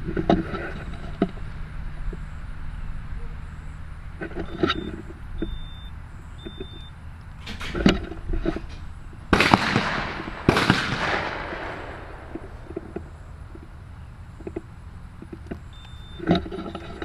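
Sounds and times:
shotgun shots echoing: 9.3 - 12.7.

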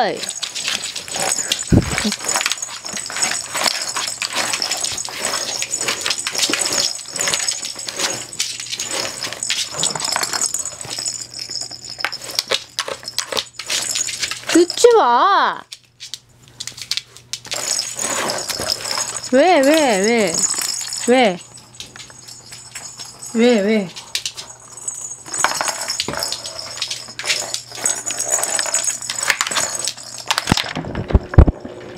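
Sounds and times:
ball rattling around toy track: 0.0 - 15.2, 16.0 - 31.9
dog claws clicking on wooden floor: 15.7 - 21.1
light clinks: 16.6 - 30.6.

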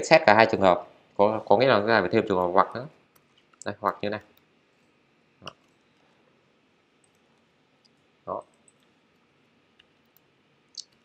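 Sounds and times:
keyboard and mouse clicks: 3.1 - 4.5, 5.4 - 6.0, 7.0 - 11.0.

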